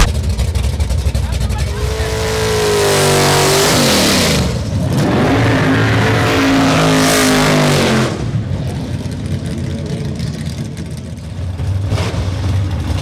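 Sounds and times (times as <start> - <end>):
car engine revving hard: 1.8 - 8.4.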